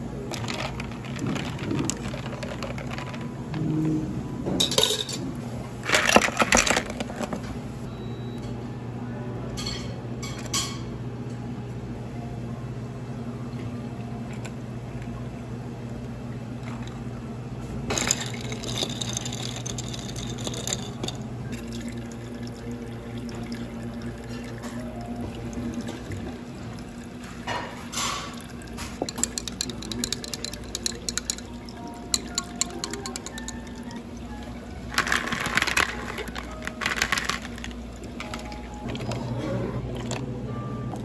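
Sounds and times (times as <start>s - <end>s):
ice cubes clinking in glass: 17.9s - 21.9s, 29.1s - 33.8s, 34.8s - 38.6s
liquid poured over ice: 17.9s - 24.4s.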